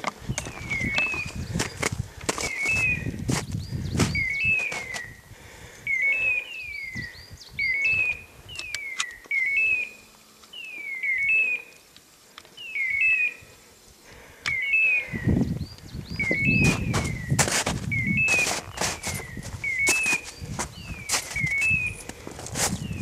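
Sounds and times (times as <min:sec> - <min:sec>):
footsteps crunching in snow: 0:00.0 - 0:05.1, 0:16.1 - 0:23.0.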